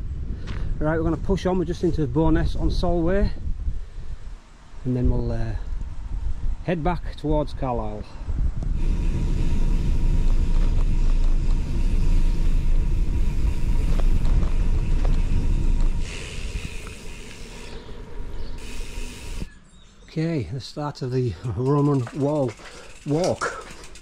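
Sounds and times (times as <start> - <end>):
wind buffeting microphone: 0.0 - 19.5
road noise: 7.8 - 24.0.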